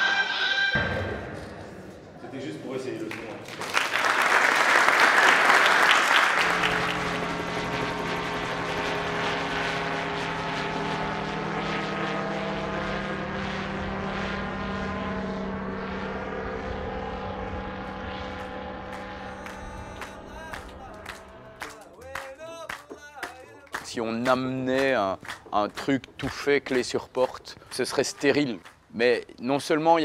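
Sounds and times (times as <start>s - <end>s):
applause: 3.0s - 7.1s, 18.9s - 26.0s, 27.7s - 28.8s
propeller aircraft engine droning: 4.9s - 28.9s.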